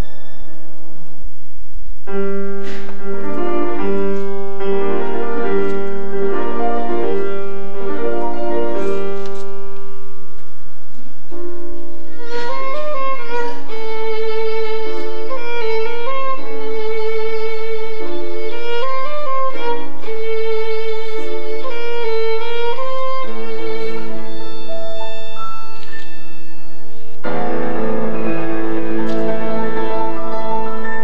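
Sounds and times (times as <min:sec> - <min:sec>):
piano accompaniment: 0:00.0 - 0:31.0
violin melody: 0:03.0 - 0:09.9, 0:11.4 - 0:31.0.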